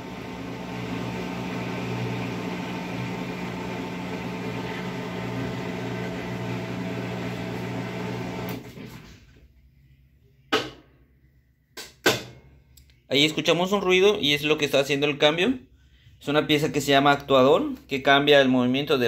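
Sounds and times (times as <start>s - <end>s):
drain pump humming: 0.0s - 8.7s.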